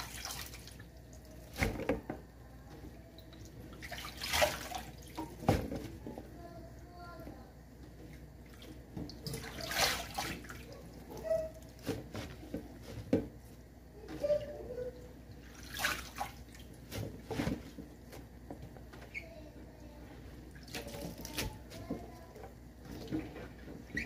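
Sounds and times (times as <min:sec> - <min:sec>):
water splashing in a steel sink: 0:00.0 - 0:02.1, 0:03.1 - 0:05.8, 0:08.3 - 0:11.8, 0:15.3 - 0:17.6, 0:20.5 - 0:22.0.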